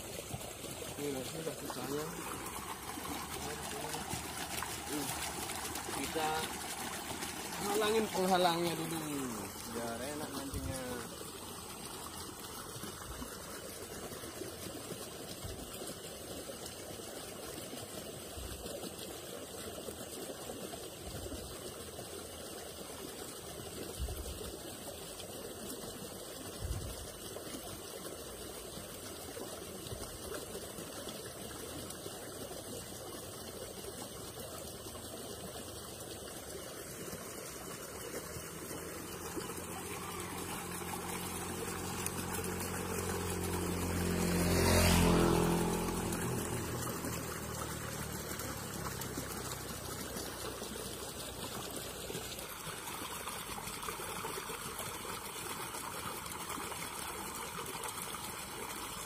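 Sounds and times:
trickle of flowing water: 0.0s - 59.0s
vehicle passing by: 0.1s - 13.0s, 35.4s - 52.6s.

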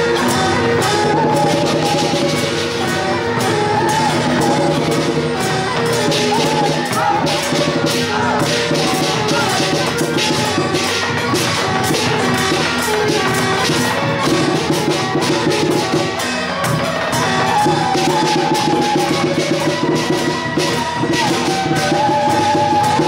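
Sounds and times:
music with fast percussion beat: 0.0s - 23.0s.

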